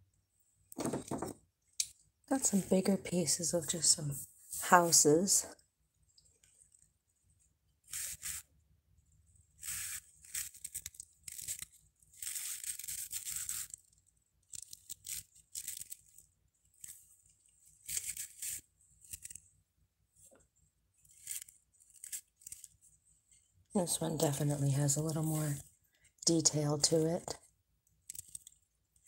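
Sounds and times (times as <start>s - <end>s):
figurines rustling and scraping: 9.5s - 26.3s, 28.0s - 29.0s.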